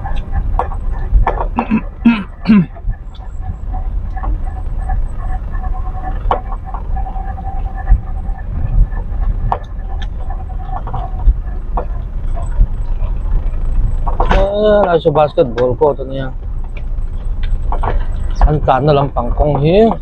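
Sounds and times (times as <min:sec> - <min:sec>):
knocks and bumps: 0:00.0 - 0:15.8
car engine and road rumble: 0:00.0 - 0:20.0.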